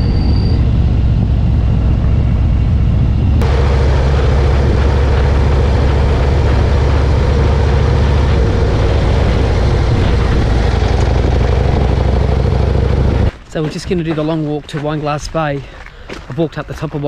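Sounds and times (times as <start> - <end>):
motorcycle engine rumble: 0.0 - 13.3
wind rushing: 0.0 - 13.3
road noise: 0.0 - 17.0.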